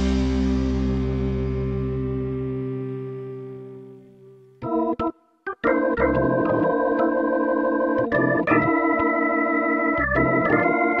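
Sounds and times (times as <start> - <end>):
electronic organ chords: 0.0 - 11.0.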